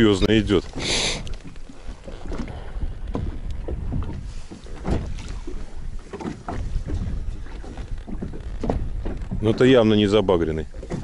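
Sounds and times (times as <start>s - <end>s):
waves lapping against boat: 0.0s - 11.0s
wind rumble on microphone: 0.0s - 11.0s.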